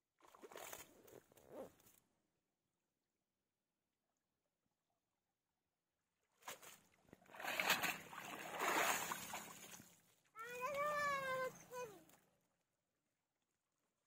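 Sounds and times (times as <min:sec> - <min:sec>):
water splashing off a net: 0:06.4 - 0:10.0.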